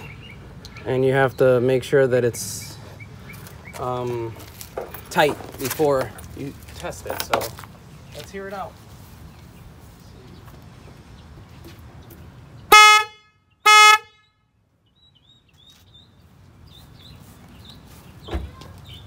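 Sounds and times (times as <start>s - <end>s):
car horn blasts: 12.7s - 14.5s.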